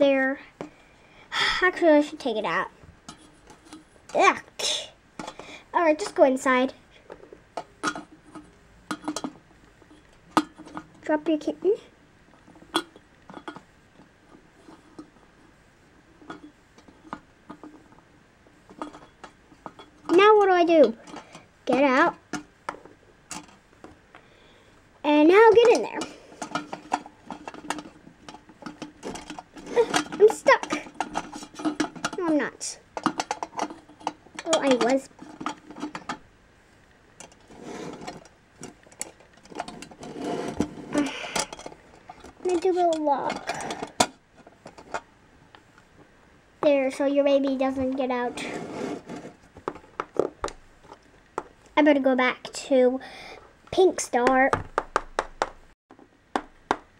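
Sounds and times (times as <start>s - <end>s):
soft plastic scraping: 37.2s - 45.0s, 47.8s - 51.0s.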